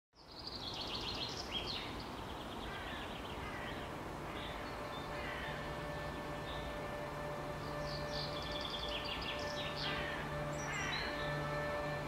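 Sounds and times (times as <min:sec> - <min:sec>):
outdoor background hiss: 0:00.2 - 0:12.0
small birds chirping and trilling: 0:00.2 - 0:12.0.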